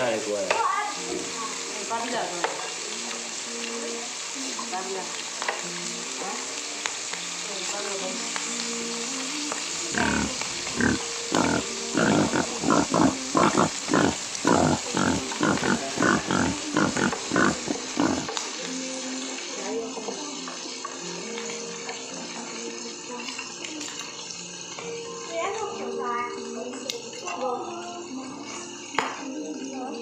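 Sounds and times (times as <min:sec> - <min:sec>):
loud bites: 0:09.9 - 0:18.3
crunchy chewing: 0:09.9 - 0:18.4.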